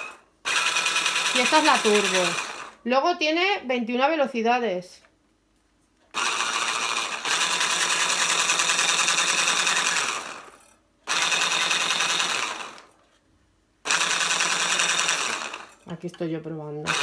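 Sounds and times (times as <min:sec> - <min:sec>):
hand blender motor running: 0:00.0 - 0:02.8, 0:06.2 - 0:12.9, 0:13.9 - 0:15.8.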